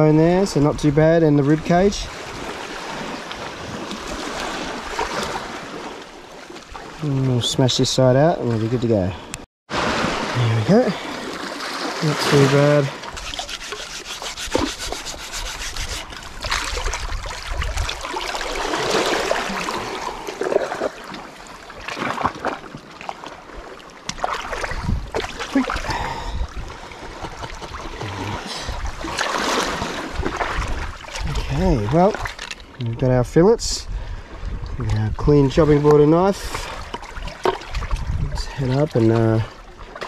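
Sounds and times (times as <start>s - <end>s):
water swishing: 1.7s - 7.4s, 9.7s - 32.7s, 35.7s - 40.0s
wooden board rubbing: 13.1s - 16.4s.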